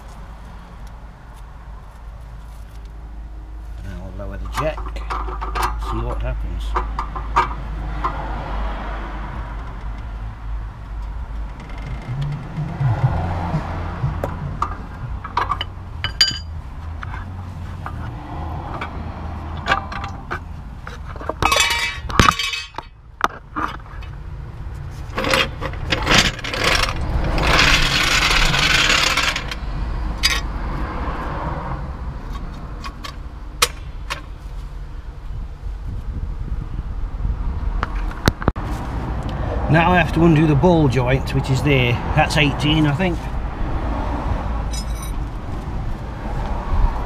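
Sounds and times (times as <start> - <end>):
metal tools clinking and scraping: 4.4 - 7.6, 14.6 - 18.1, 19.6 - 24.2, 25.0 - 29.6, 44.7 - 45.4
trolley jack rasping: 25.2 - 29.6.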